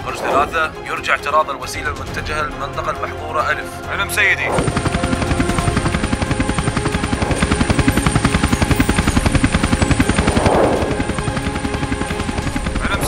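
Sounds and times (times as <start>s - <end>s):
brief whoosh: 0.0s - 0.7s, 10.2s - 11.0s
helicopter rotor chopping: 0.0s - 2.6s, 3.8s - 13.0s.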